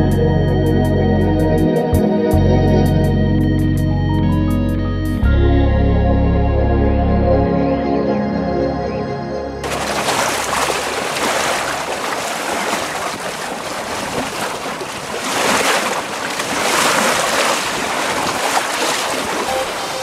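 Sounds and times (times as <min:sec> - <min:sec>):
water rushing along a hull: 0:09.6 - 0:20.0.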